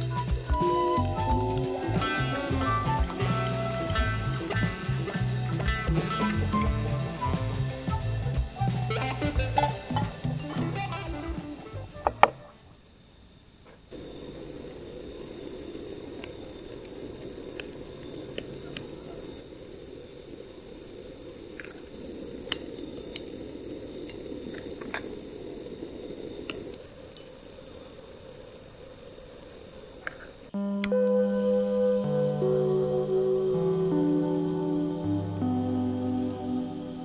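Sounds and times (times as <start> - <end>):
low rushing noise: 0.0 - 12.3
crickets chirping: 0.0 - 37.0.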